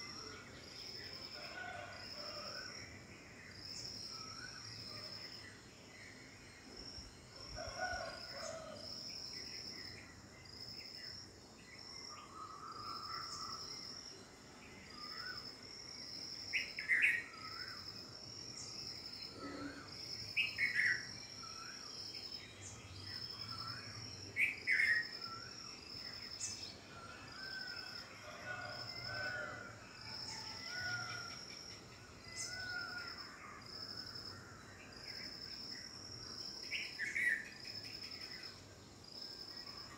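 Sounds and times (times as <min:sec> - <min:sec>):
insect pulsing chirr: 0:00.0 - 0:39.9.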